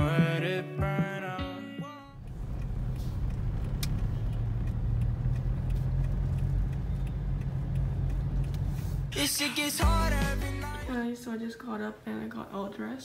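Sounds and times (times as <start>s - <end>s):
car engine and road rumble: 2.2s - 10.9s.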